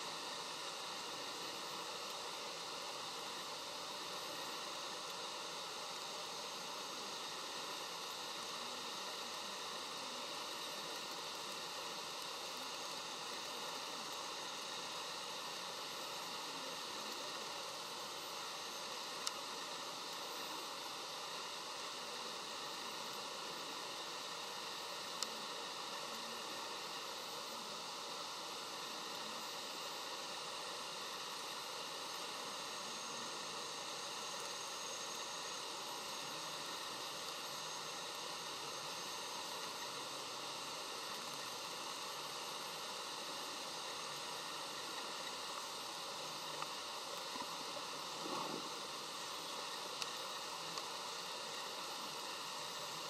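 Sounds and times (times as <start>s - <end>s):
steady hiss: 0.0s - 53.0s.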